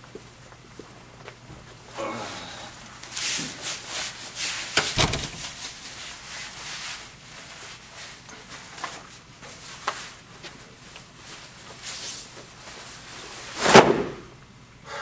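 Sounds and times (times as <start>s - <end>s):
clothing rustling: 3.2s - 13.2s.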